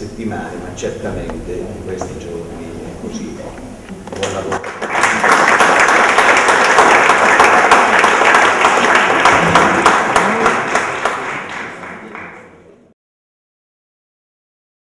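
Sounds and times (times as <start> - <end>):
audience applauding: 4.2 - 12.8.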